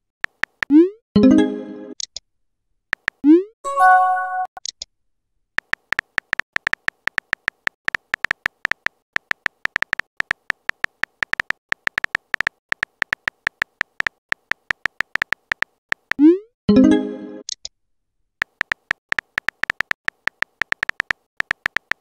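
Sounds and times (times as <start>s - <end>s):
keyboard typing clicks: 3.0s - 3.3s, 5.6s - 16.3s, 18.4s - 22.0s.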